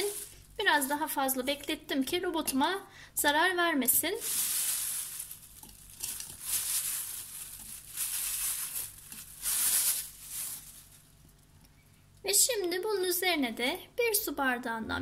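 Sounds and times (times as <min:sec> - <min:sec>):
plastic bag crinkling: 0:00.0 - 0:00.6, 0:04.1 - 0:11.5.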